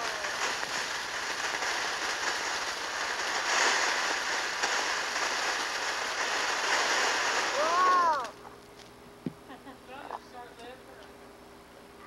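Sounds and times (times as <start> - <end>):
firework fountain hissing: 0.0 - 8.6
faint crackles: 0.0 - 11.2.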